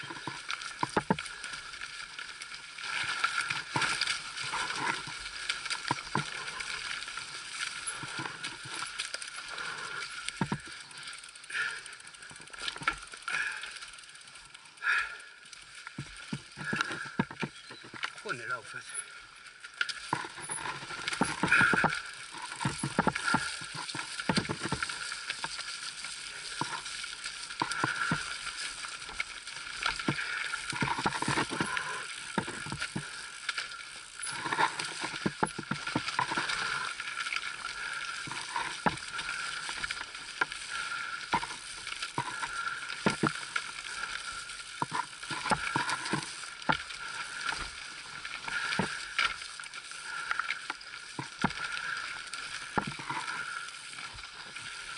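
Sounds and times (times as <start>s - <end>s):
bike rattling: 0.0s - 54.9s
bike tyres rolling over stones: 0.0s - 54.9s.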